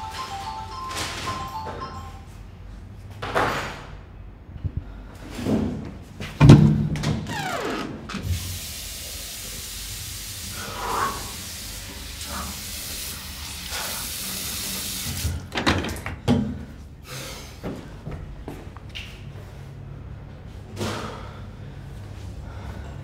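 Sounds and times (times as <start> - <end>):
sharp knocks and thumps: 5.6 - 7.2.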